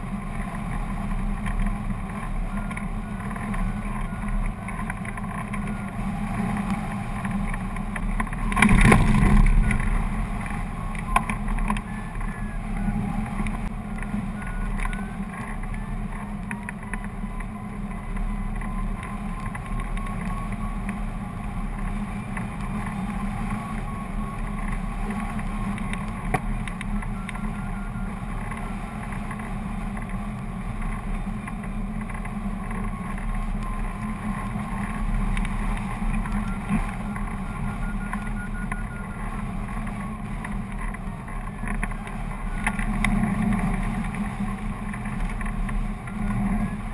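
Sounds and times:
wind buffeting microphone: 0.2s - 46.9s
faint wavering high tones: 8.6s - 20.9s, 36.0s - 40.2s.

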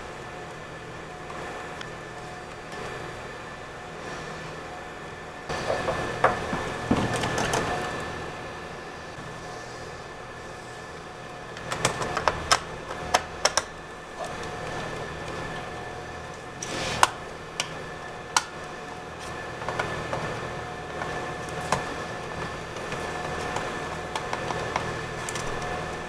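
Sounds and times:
faint hum: 0.0s - 26.0s
screwdriver scrape: 16.6s - 17.1s.

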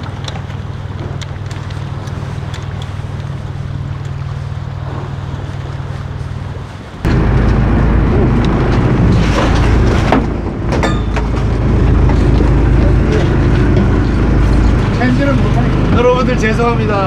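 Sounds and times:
boat engine rumbling: 0.0s - 17.0s
low engine hum: 0.0s - 17.0s
wind: 0.0s - 17.0s
knocks and clatters: 7.1s - 15.0s.

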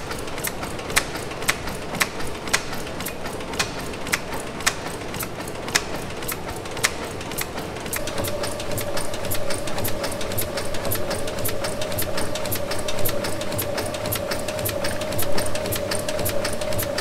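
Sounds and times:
steam engine mechanical clicks: 0.0s - 17.0s
low hum: 8.0s - 17.0s
steady high tone: 8.0s - 17.0s.

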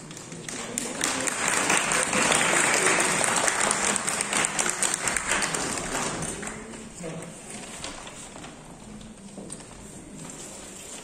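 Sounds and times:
audience applauding: 0.4s - 6.6s.

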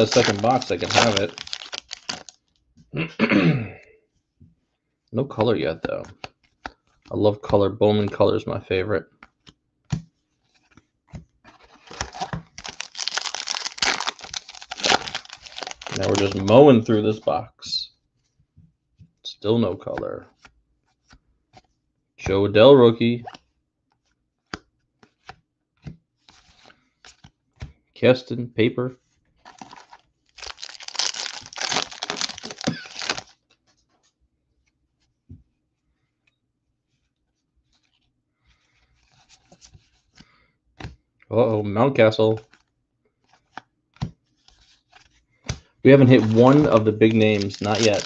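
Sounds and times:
foil wrapper tearing and crinkling: 0.0s - 2.4s, 11.8s - 16.5s, 29.6s - 33.4s, 46.0s - 48.0s.

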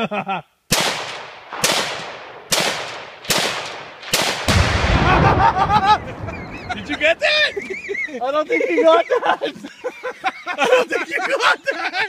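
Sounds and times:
rifle shots echoing: 0.7s - 7.2s
explosion with deep rumble: 4.4s - 7.2s.

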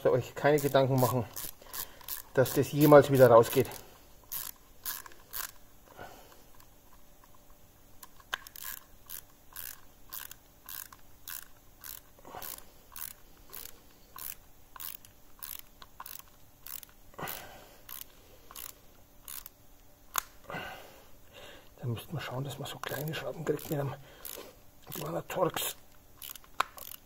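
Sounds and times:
screwdriver clicking: 8.0s - 17.0s, 26.2s - 27.0s.

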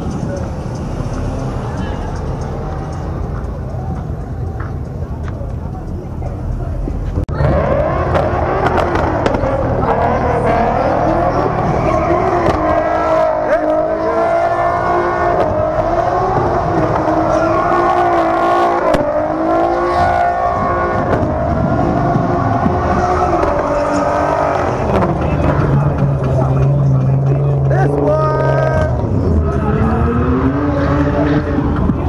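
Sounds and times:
car engine at high revs: 6.8s - 32.0s
tyres squealing on asphalt: 7.3s - 31.8s.

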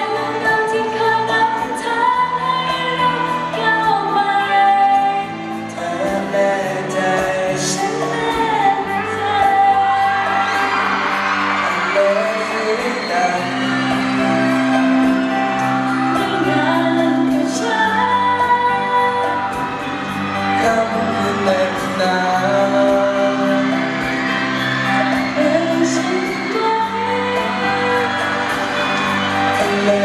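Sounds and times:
woman singing: 0.0s - 23.8s, 25.0s - 30.0s
band accompaniment: 4.9s - 30.0s
man singing: 5.6s - 9.9s, 11.6s - 15.2s, 20.4s - 24.2s, 29.5s - 30.0s.

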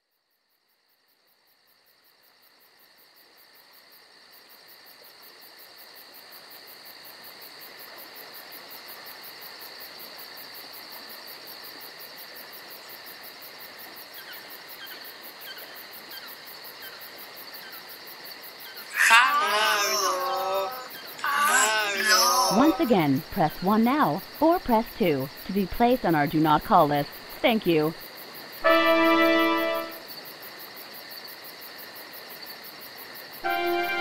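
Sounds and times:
faint chirps: 18.6s - 22.8s
fast high pulse: 28.6s - 30.0s
high electronic drone: 33.4s - 34.0s.

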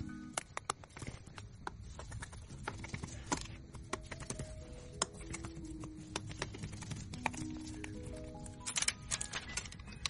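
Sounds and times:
faint background music: 0.0s - 10.0s.

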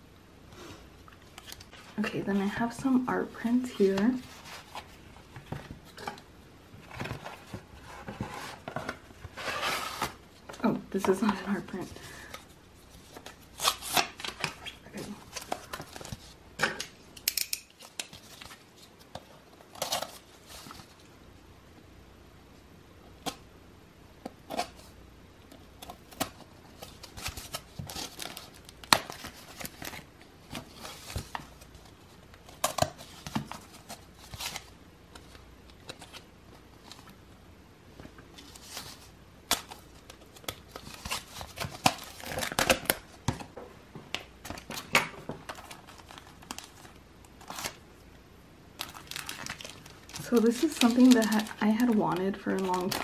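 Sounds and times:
packaging tearing and crinkling: 13.1s - 16.3s, 38.5s - 43.1s, 48.8s - 53.0s.

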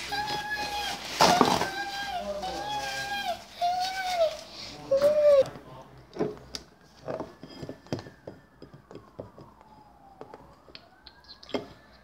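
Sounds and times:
faint siren wailing: 0.0s - 12.0s
plastic toys clicking and knocking: 6.2s - 12.0s.

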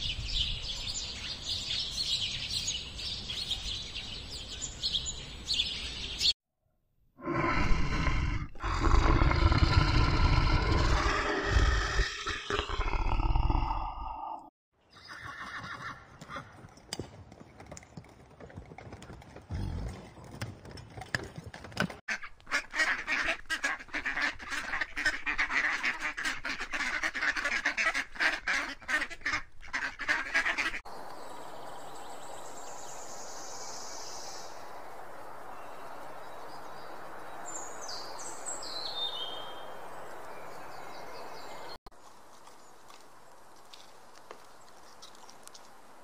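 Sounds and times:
steady outdoor hiss: 7.2s - 14.3s, 22.4s - 46.0s.

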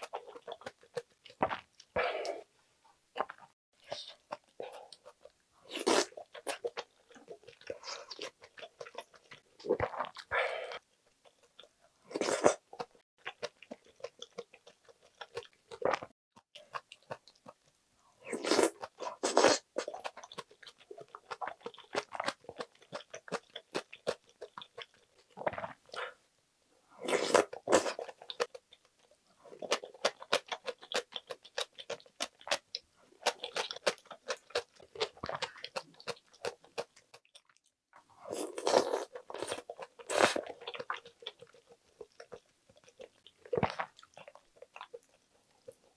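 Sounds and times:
crunching and slurping: 18.2s - 26.2s, 38.2s - 45.9s
wet chewing: 27.1s - 45.9s.

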